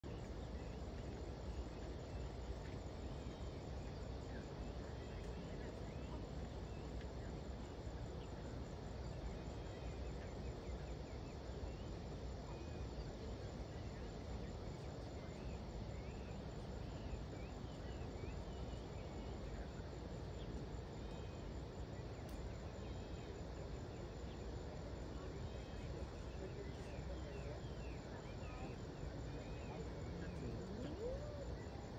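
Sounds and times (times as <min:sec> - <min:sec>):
faint bird chirps: 0:00.0 - 0:31.9.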